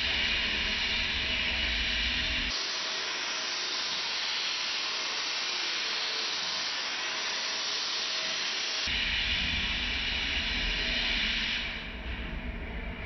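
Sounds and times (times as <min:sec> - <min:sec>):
welding hiss: 0:00.0 - 0:12.1
deep machine rumble: 0:09.0 - 0:13.0.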